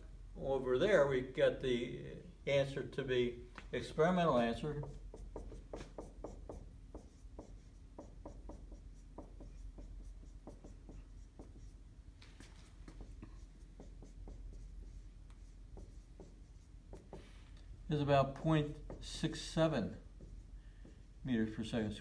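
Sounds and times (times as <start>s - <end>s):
marker writing on whiteboard: 4.2s - 17.4s, 18.3s - 21.2s.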